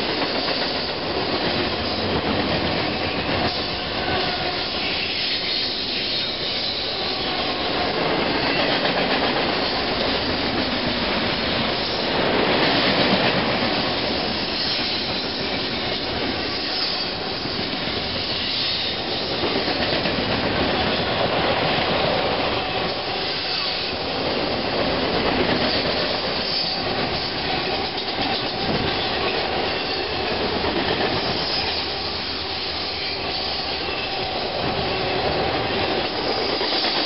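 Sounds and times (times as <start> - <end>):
freight train passing: 0.0 - 37.0.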